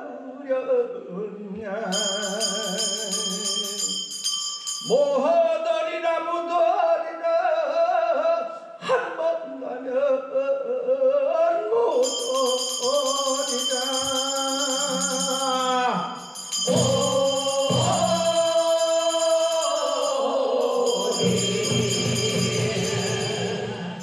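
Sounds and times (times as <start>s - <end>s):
person singing long held notes: 16.7s - 24.0s.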